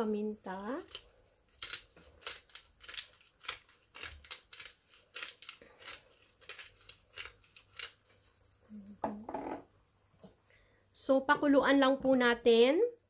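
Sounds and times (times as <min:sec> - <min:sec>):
pepper grinder grinding: 0:00.0 - 0:08.6.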